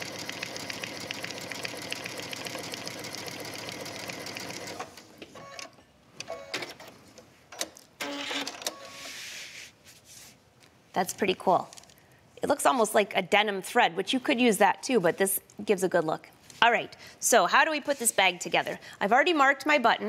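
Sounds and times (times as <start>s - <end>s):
sewing machine running: 0.0s - 4.9s.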